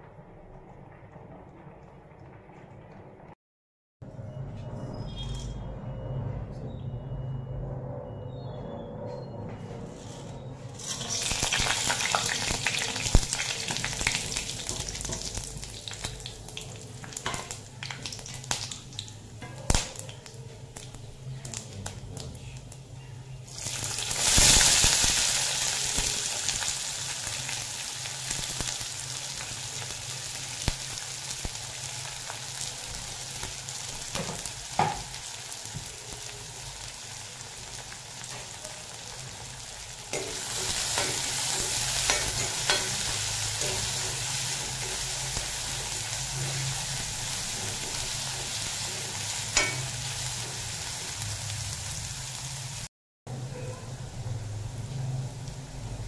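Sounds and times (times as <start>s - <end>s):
oil sizzling with frying spices: 10.7s - 56.0s
onions frying in oil: 10.8s - 56.0s.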